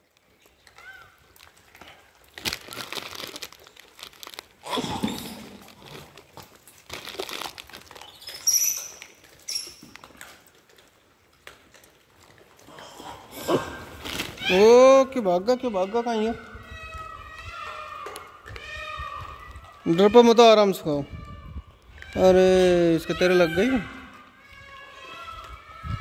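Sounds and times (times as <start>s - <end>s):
monkeys rustling and eating: 0.0s - 26.0s.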